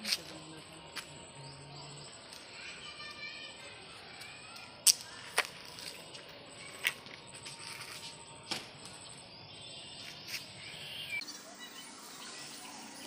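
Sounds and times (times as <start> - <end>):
faint bird chirps: 9.4 - 13.0.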